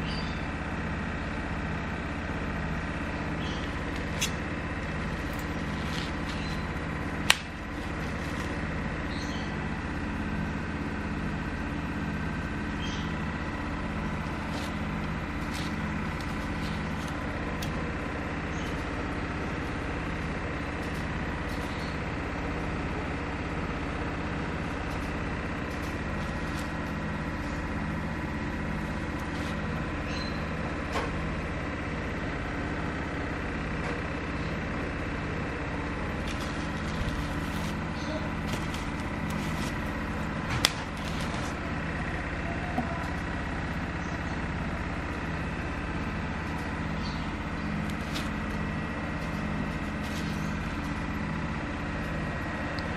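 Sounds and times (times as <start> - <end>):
engine idling: 0.0 - 52.9.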